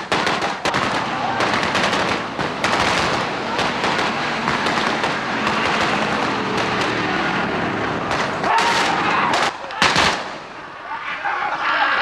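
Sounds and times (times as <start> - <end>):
rapid gunfire: 0.0 - 7.2.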